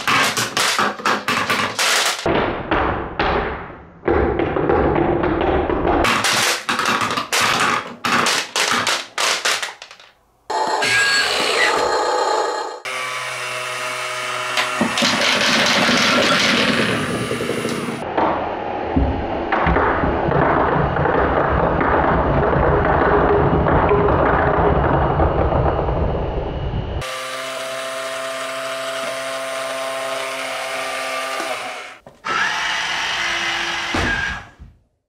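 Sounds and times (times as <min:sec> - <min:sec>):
balls and marbles tumbling out: 0:03.2 - 0:10.2, 0:14.8 - 0:18.1, 0:19.5 - 0:26.1
marbles clattering down wooden ramps: 0:04.1 - 0:10.2, 0:19.6 - 0:25.3.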